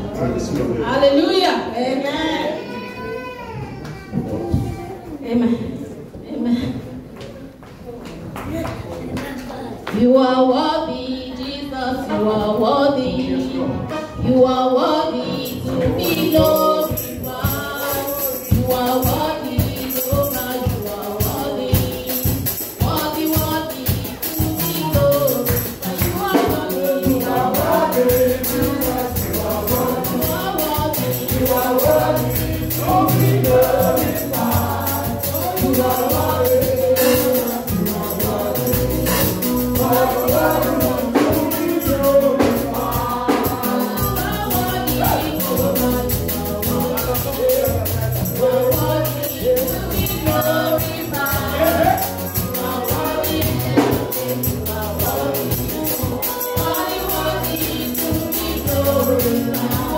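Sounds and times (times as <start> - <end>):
choir singing: 11.5 - 59.9
drums: 15.2 - 59.9
tambourine: 15.3 - 59.9
bass line: 26.0 - 55.9.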